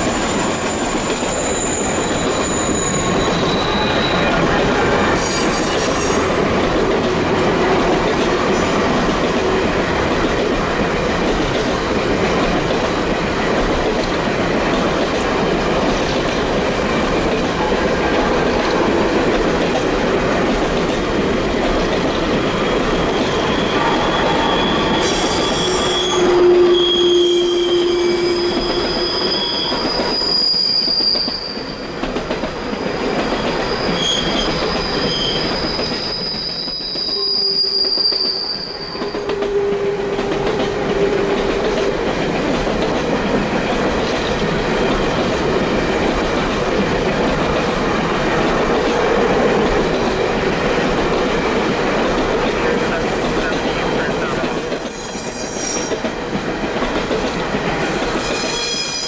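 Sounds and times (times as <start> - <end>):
wheel flanges squealing: 0.0 - 6.2, 22.4 - 31.7, 33.0 - 40.0
freight train cars rumbling: 0.0 - 59.0.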